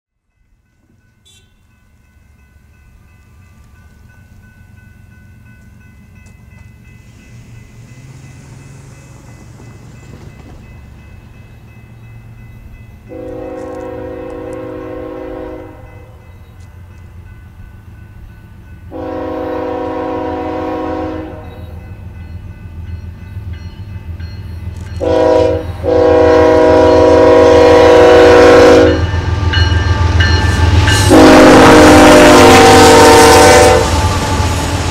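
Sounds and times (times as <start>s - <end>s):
diesel locomotive rumble: 0.8s - 34.9s
locomotive air horn blasts: 1.2s - 1.8s, 13.1s - 16.1s, 18.9s - 21.8s, 25.0s - 29.1s, 30.9s - 34.5s.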